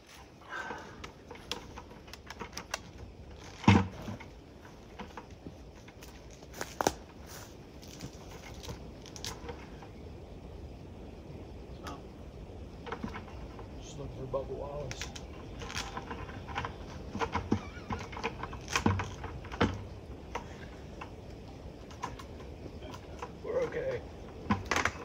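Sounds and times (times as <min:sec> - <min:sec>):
footsteps on leafy ground: 0:06.2 - 0:08.7.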